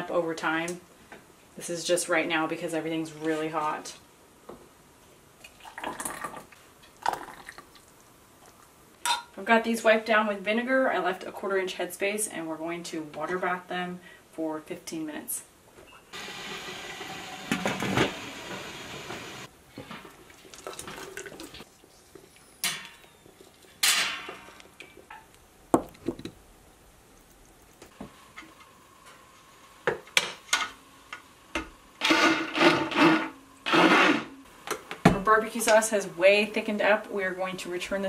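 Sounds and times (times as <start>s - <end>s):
immersion blender running: 16.2s - 19.5s, 32.0s - 34.3s
water sloshing and bubbling: 19.9s - 22.2s.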